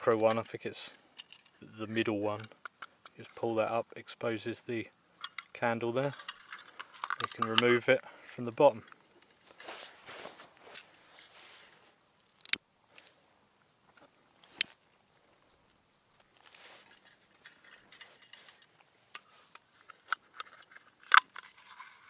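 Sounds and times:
small metallic clicks and clinks: 0.1s - 1.6s, 5.2s - 8.0s, 16.2s - 22.0s.

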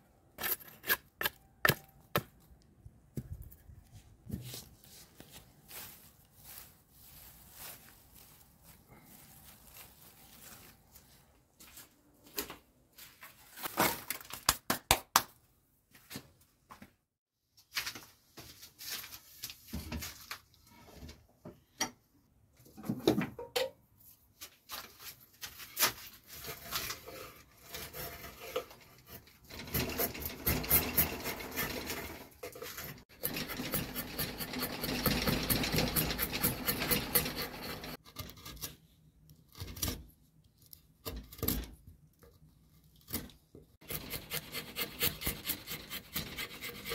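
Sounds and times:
tools scraping and filing wood: 0.1s - 2.5s, 25.4s - 46.9s.

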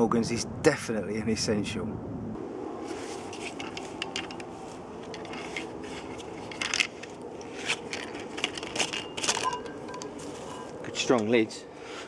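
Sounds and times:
metal clatter: 3.3s - 10.8s.

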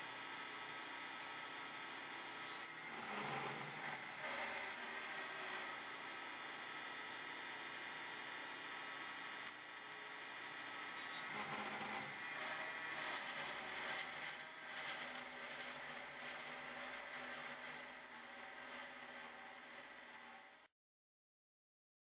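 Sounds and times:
milling machine spindle whine: 0.4s - 20.7s
end mill scraping metal: 2.7s - 6.2s, 11.0s - 20.5s.

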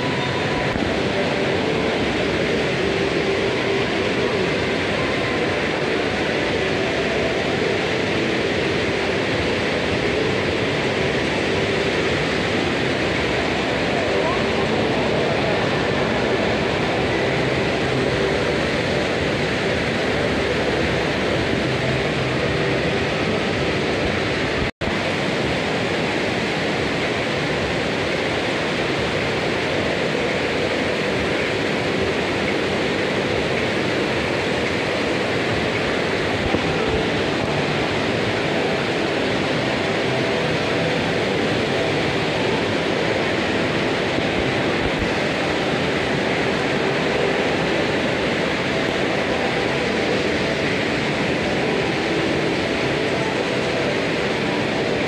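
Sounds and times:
water rushing in channel: 0.0s - 55.0s.

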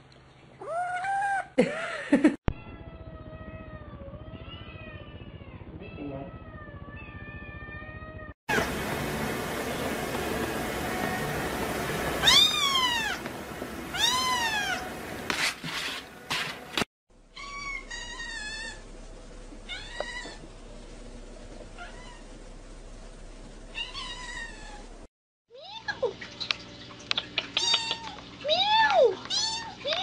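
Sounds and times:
kittens meowing: 12.2s - 13.2s.

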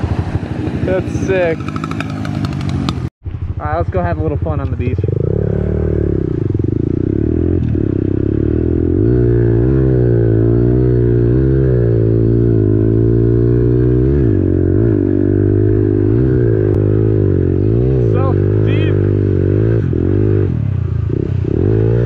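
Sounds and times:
pit bike engine revving: 0.0s - 22.0s.

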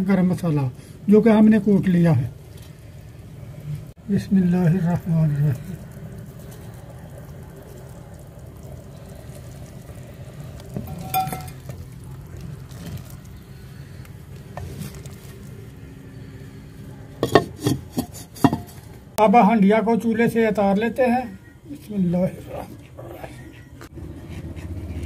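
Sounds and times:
pot bubbling: 0.0s - 19.2s
wooden spoon scraping pot: 4.9s - 16.0s, 17.2s - 19.0s
metallic clink: 10.9s - 11.6s.

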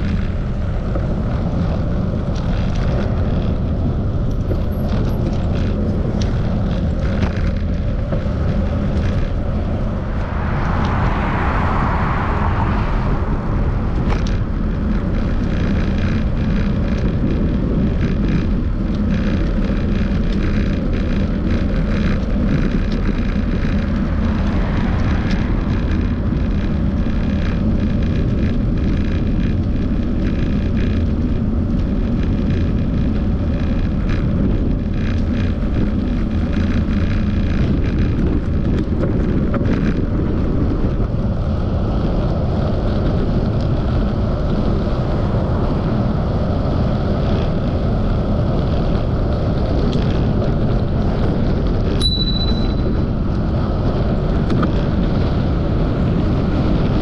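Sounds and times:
road noise: 0.0s - 57.0s
wind rushing over microphone: 0.0s - 57.0s.

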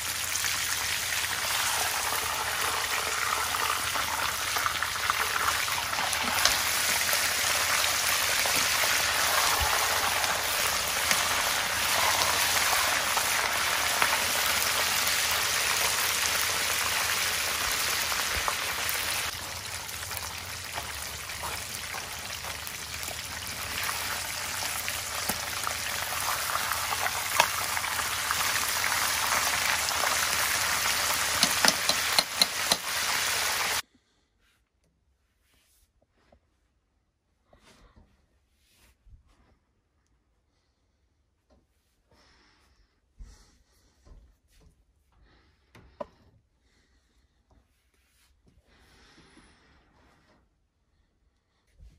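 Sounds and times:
chicken deep-frying in oil: 0.0s - 33.8s.

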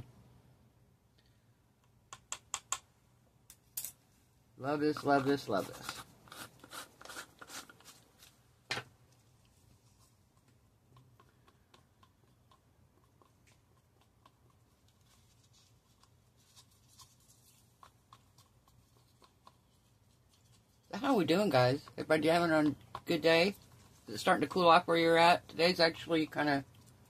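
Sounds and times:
stick scraping in plastic cup: 5.0s - 8.4s.

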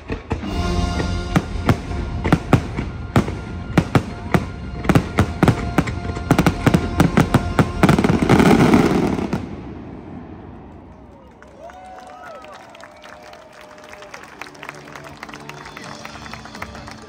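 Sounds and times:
firework bangs: 0.0s - 10.7s.

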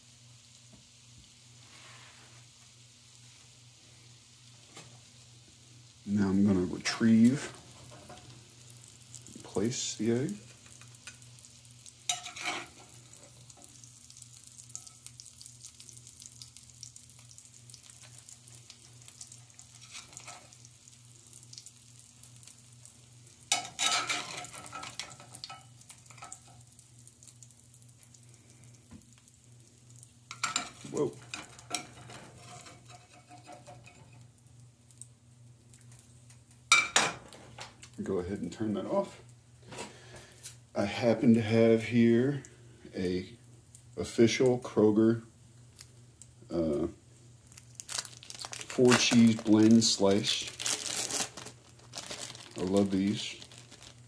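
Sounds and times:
oil sizzling in a skillet: 0.0s - 54.0s
metal spatula scraping a pan: 12.1s - 13.4s, 19.8s - 20.6s, 23.5s - 26.6s, 30.3s - 34.2s.

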